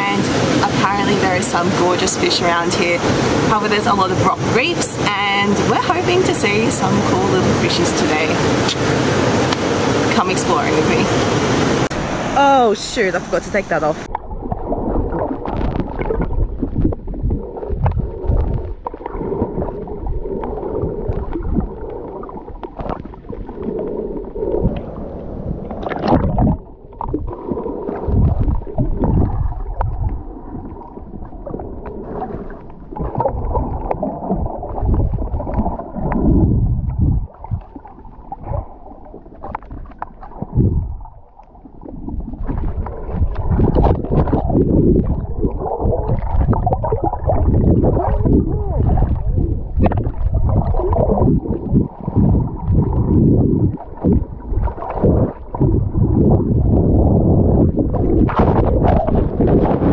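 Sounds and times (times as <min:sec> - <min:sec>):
underwater water sloshing: 0:00.0 - 0:59.9
underwater thumps: 0:14.0 - 0:23.5, 0:25.6 - 0:59.9.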